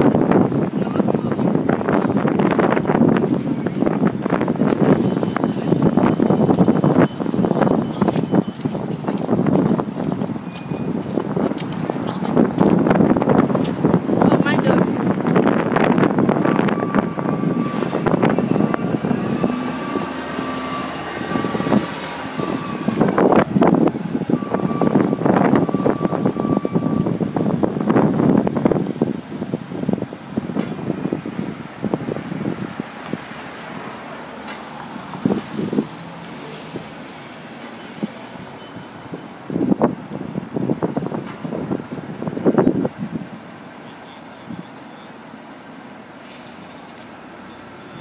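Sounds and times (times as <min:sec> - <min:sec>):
city traffic hum: 0:00.0 - 0:48.0
vehicle rumbles: 0:00.0 - 0:48.0
engine drone: 0:15.0 - 0:28.4.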